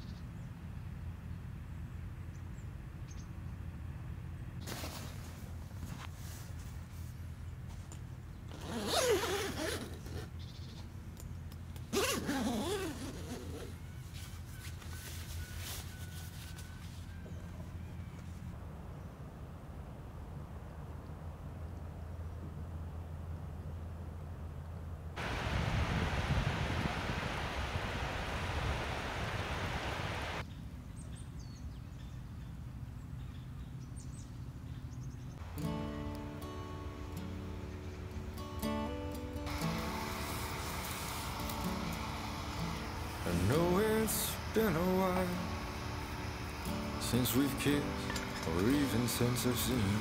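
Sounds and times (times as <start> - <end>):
small birds chirping: 10.1 - 11.7
steady low hum: 16.6 - 31.0, 34.5 - 50.0
wind noise: 25.2 - 30.4.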